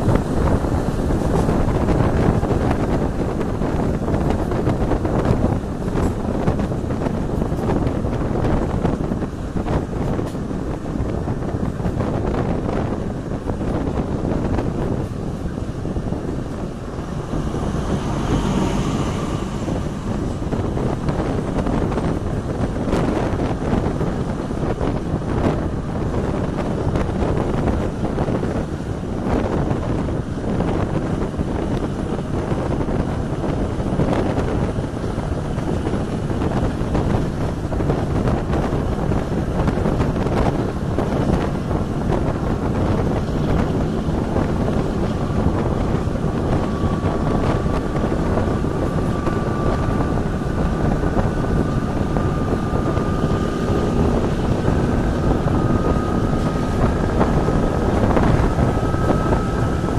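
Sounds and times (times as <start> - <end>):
train wheels rumbling on rail: 0.0 - 59.9
wind across microphone: 0.0 - 59.9
thin high whine: 45.0 - 59.9.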